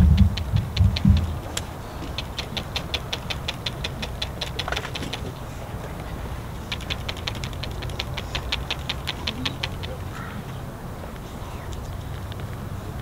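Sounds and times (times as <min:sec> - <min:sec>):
low outdoor rumble: 0:00.0 - 0:13.0
rapid short high chirps: 0:06.5 - 0:10.2.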